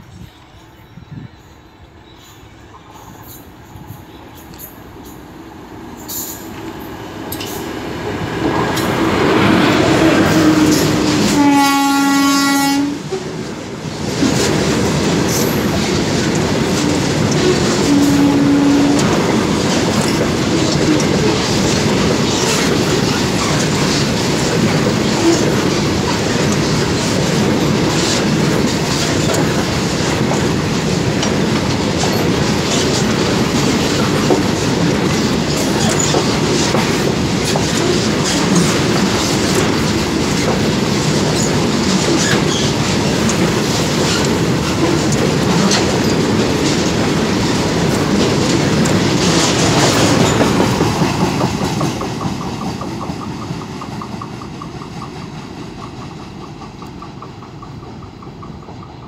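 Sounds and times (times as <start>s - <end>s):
freight train rumbling past: 0.0s - 59.0s
train horn: 9.8s - 13.2s, 17.3s - 19.4s
wheels clattering over rail joints: 14.0s - 59.0s.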